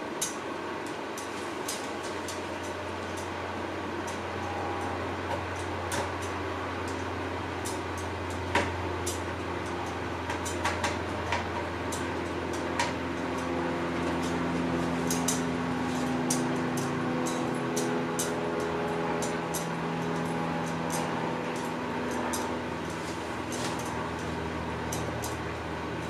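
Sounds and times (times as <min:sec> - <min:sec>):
higher steady hum: 0:00.0 - 0:26.0
low hum: 0:01.2 - 0:26.0.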